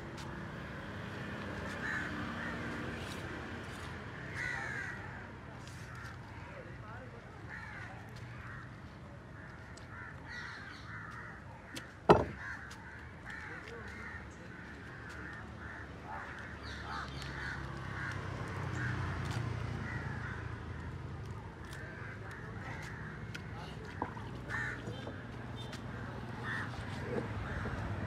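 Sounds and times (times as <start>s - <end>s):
crows cawing: 1.6s - 3.3s, 4.2s - 6.8s, 7.4s - 21.0s, 21.6s - 28.0s
knife set down on wooden table: 12.1s - 12.4s.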